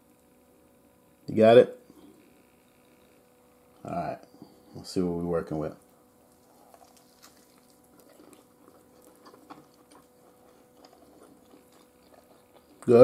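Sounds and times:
low steady hum: 0.0s - 13.0s
faint chewing of crispy food: 5.7s - 13.0s.

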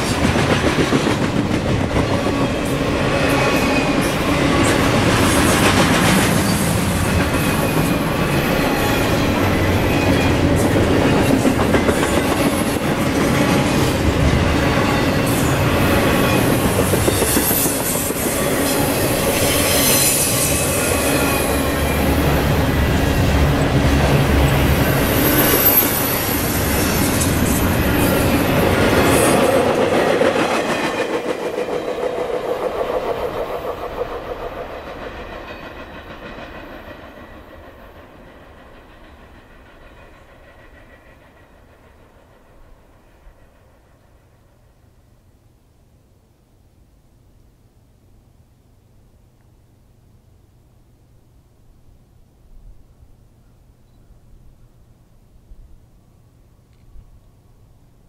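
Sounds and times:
train wheels rumbling and clattering: 0.0s - 44.6s
high wheel squeals: 24.6s - 28.6s.

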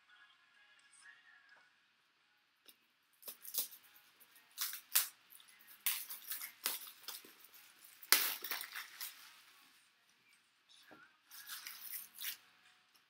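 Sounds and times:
cards crinkling and rustling: 3.2s - 9.7s, 11.3s - 12.5s.

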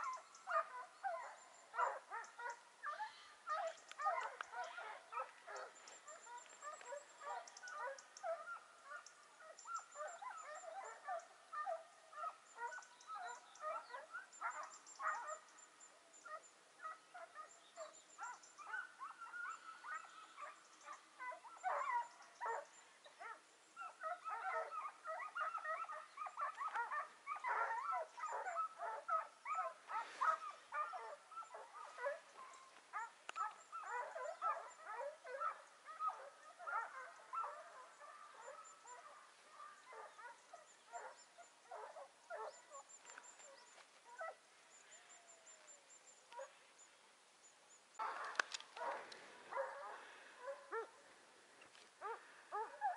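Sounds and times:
hounds yelping and baying: 0.0s - 46.9s, 47.7s - 52.9s.

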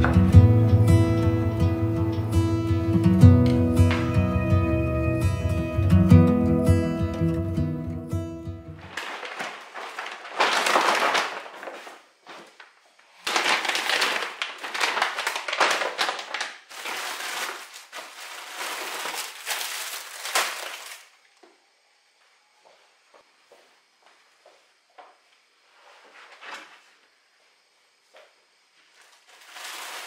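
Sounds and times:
plastic bags rustling and crinkling: 8.8s - 21.2s, 28.9s - 30.0s.

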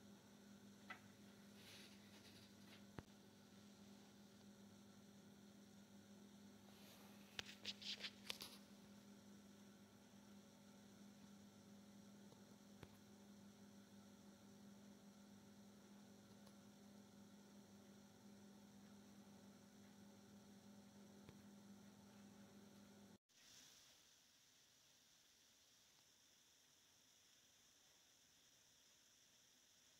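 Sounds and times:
faint electrical hum: 0.0s - 29.9s.

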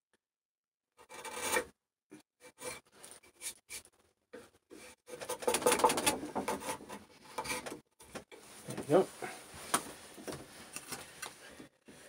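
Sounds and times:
hand tool scraping wood: 4.7s - 7.8s.

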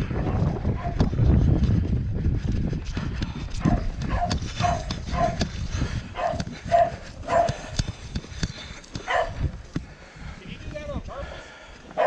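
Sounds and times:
dog barking: 0.8s - 1.0s, 3.6s - 5.5s, 6.2s - 7.7s, 9.0s - 9.4s.

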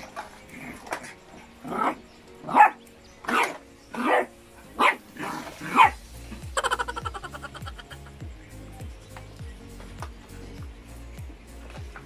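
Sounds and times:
puppy barking: 1.7s - 6.0s.

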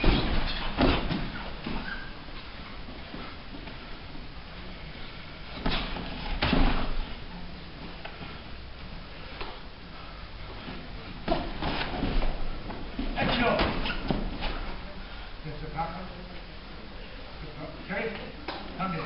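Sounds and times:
dull sparring impacts: 0.0s - 1.9s, 5.5s - 7.2s
room noise: 0.0s - 19.0s.

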